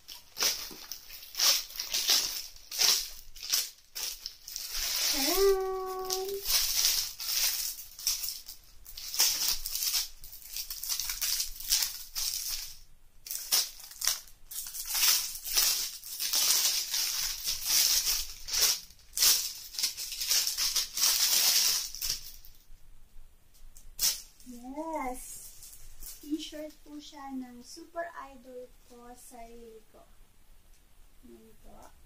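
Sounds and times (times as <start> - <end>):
plastic bag crinkling: 0.0 - 22.6, 24.0 - 27.0.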